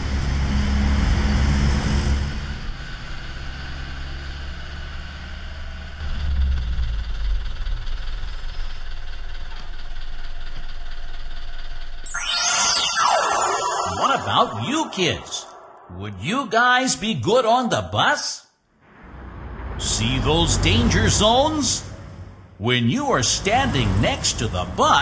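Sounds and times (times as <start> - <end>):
bus engine rumbling: 0.0 - 11.4, 18.9 - 25.0.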